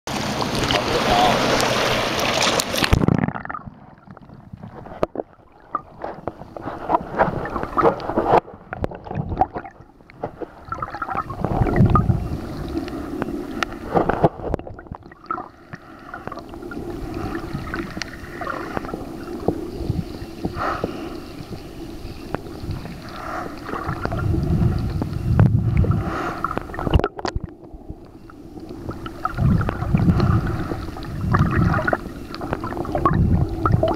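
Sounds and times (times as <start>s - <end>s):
muffled underwater rumbling: 0.1s - 33.9s
water lapping and splashing: 0.1s - 33.9s
underwater clicks and knocks: 1.6s - 12.1s, 26.5s - 28.2s.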